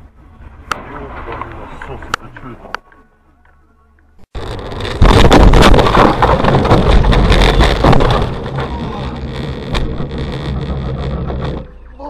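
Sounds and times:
steady noise: 4.2s - 11.7s
windshield cracking: 4.3s - 11.8s
crunching and knocking: 4.3s - 11.9s
car crash impact: 4.4s - 11.7s.

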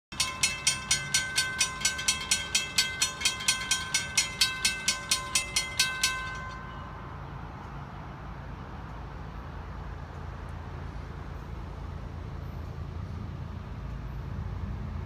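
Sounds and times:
crossing warning bell ringing: 0.1s - 8.6s.

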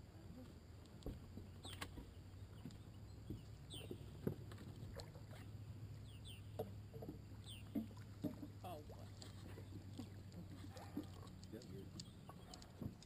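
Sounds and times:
low steady boat hum: 0.0s - 13.0s.

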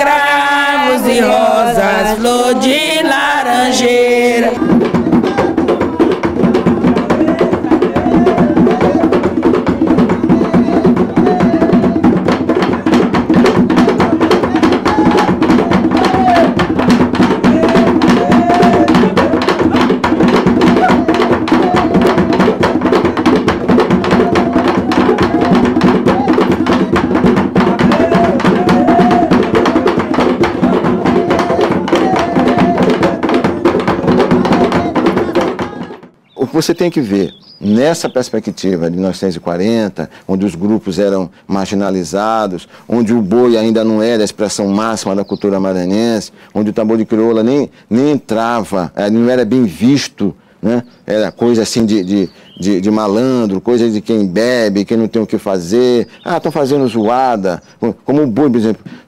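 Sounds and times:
group of voices singing: 0.0s - 36.1s
clacking wooden beat: 0.0s - 38.9s, 40.5s - 50.0s, 50.6s - 59.0s
fast drumming: 3.6s - 36.2s, 50.6s - 58.8s.

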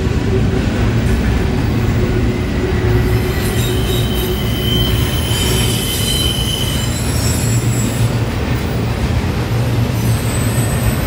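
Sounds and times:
freight train rumbling past: 0.0s - 11.0s
high-pitched wheel squeal: 3.1s - 8.2s.

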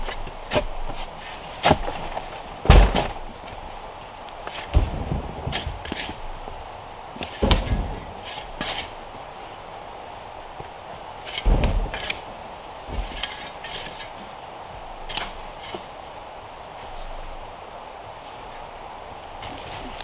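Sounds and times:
dull thuds: 0.0s - 3.6s, 4.4s - 6.3s, 7.2s - 9.0s, 10.5s - 14.0s
shovel scraping into sandy soil: 8.2s - 9.0s.

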